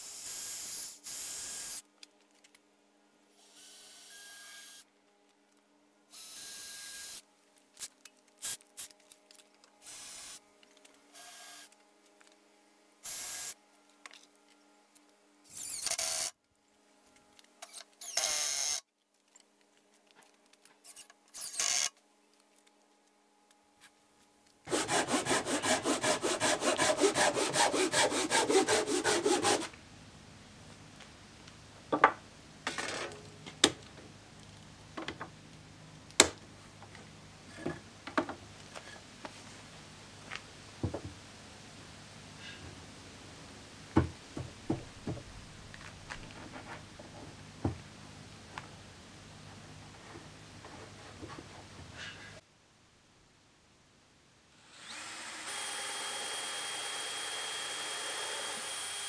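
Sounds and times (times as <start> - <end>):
cordless drill driving screws: 15.5 - 16.3, 17.6 - 18.8, 54.8 - 59.0
rhythmic rasping on wood: 24.7 - 29.7.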